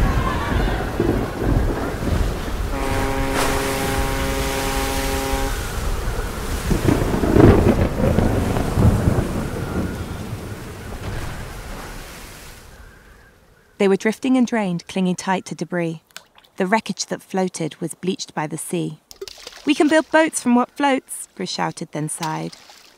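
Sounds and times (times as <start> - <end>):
thunder rumbling: 0.0 - 13.3
rain: 0.0 - 14.6, 19.0 - 22.9
wind: 0.0 - 22.9
steady humming tone: 2.7 - 6.5.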